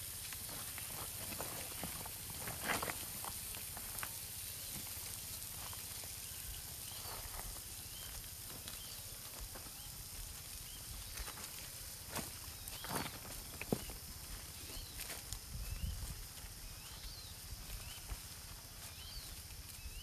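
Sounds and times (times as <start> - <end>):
high outdoor hiss: 0.0 - 20.0
clawed feet scuffing on dirt: 6.8 - 20.0.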